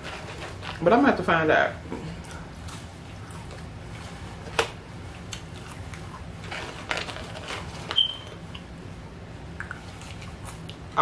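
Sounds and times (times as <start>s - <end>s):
chewing fries: 2.0s - 4.2s, 5.2s - 8.7s, 9.6s - 11.0s
paper carton crinkle: 6.4s - 8.4s.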